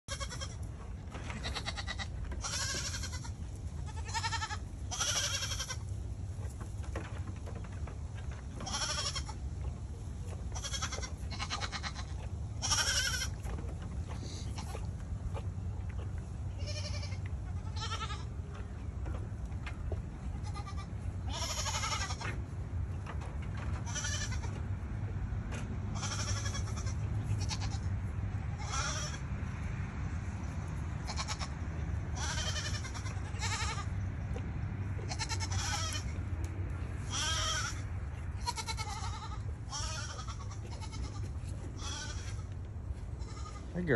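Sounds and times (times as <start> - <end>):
goats bleating: 0.1 - 0.6, 1.2 - 5.9, 8.6 - 9.4, 10.5 - 13.5, 14.2 - 15.0, 16.5 - 18.5, 20.3 - 22.4, 23.8 - 24.6, 25.9 - 28.0, 28.6 - 29.3, 31.0 - 34.0, 35.0 - 36.3, 37.0 - 43.9.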